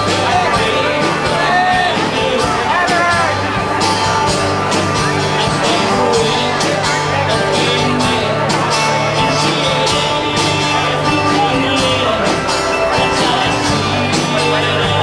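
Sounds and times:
acoustic guitar: 0.0s - 15.0s
bass line: 0.0s - 15.0s
drum kit and cymbals: 0.0s - 15.0s
keyboard: 0.0s - 15.0s.

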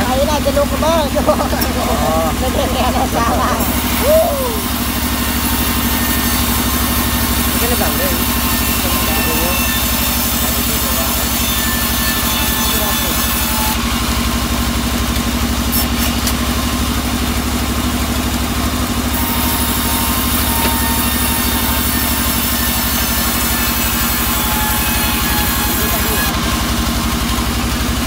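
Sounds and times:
band saw running: 0.0s - 28.0s
saw cutting wood hiss: 1.2s - 16.9s, 19.0s - 27.3s.

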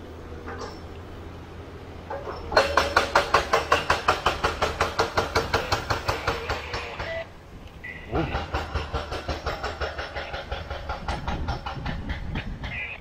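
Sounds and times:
rapid sharp knocking: 2.5s - 7.2s, 8.2s - 13.0s.

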